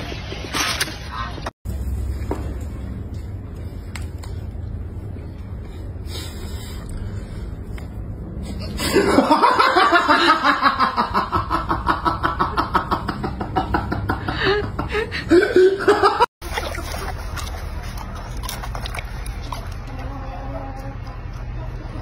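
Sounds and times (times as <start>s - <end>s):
person laughing hard: 8.7s - 16.3s.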